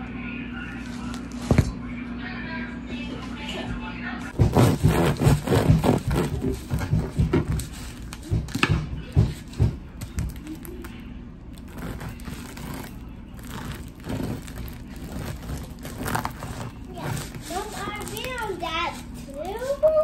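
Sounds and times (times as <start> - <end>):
knife sawing through bread crust: 4.4 - 8.1, 11.6 - 20.0.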